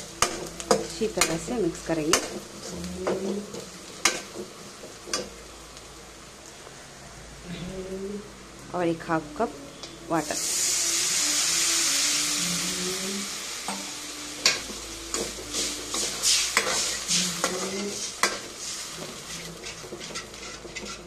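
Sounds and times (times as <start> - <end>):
water hissing in hot oil: 10.1 - 21.0
spoon scraping and clinking in pan: 13.7 - 21.0.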